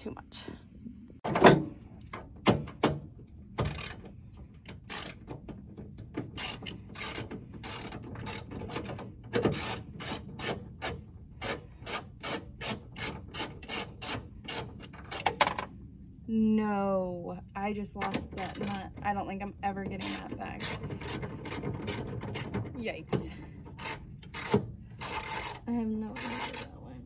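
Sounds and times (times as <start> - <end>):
ratchet wrench clicking: 23.8 - 26.7.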